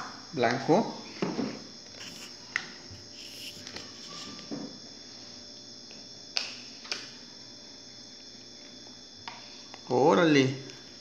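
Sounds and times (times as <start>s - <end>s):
insect trilling: 1.7s - 5.7s.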